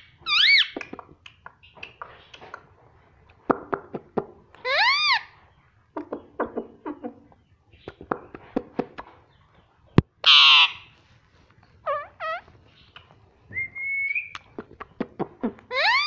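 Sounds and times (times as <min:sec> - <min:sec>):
parakeet clicking: 0:00.8 - 0:02.7
parakeet harsh screech: 0:04.7 - 0:05.3, 0:10.3 - 0:10.9, 0:15.7 - 0:16.0.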